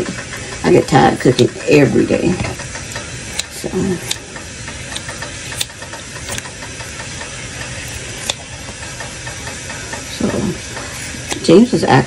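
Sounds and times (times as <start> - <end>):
steady hissing hum: 0.0 - 12.0
scissors cutting raw chicken: 11.0 - 11.6.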